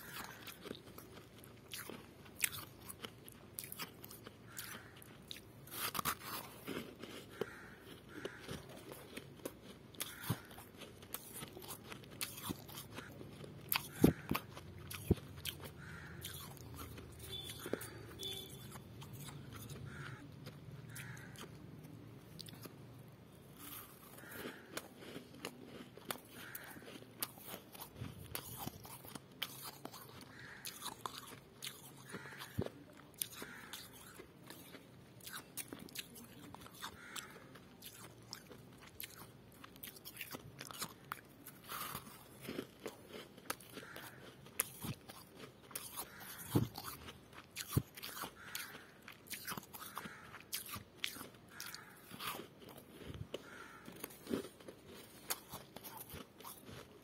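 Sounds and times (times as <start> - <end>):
frost being chewed: 0.0 - 57.0.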